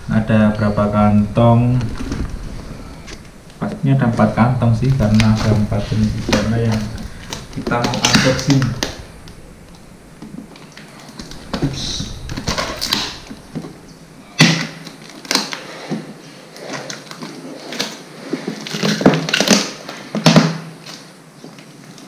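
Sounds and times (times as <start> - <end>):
rustling: 0.0 - 22.0
packing tape tearing: 4.8 - 9.0, 14.4 - 15.7, 16.6 - 22.0.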